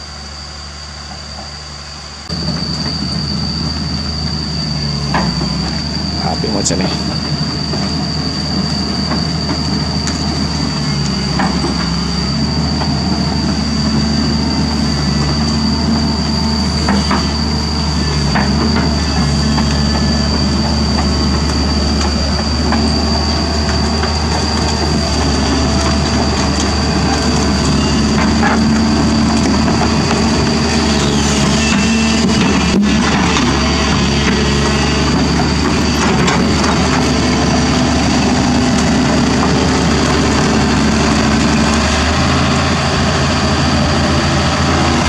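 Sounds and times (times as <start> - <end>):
excavator engine and hydraulics: 0.0 - 45.0
high whine: 0.0 - 45.0.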